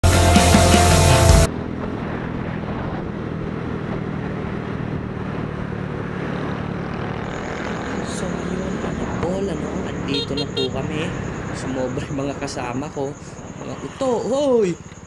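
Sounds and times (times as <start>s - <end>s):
motorcycle engine running: 0.0s - 11.8s
wind on microphone: 1.5s - 10.1s.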